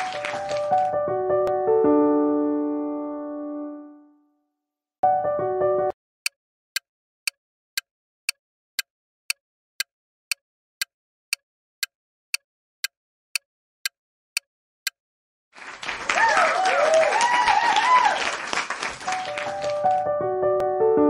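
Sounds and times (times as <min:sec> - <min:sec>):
timer ticking: 0:07.2 - 0:15.0.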